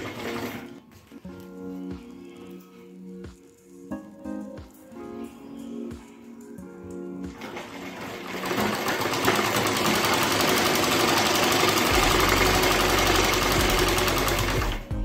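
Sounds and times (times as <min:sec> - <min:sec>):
sewing machine stitching: 0:00.0 - 0:00.8, 0:07.3 - 0:14.9.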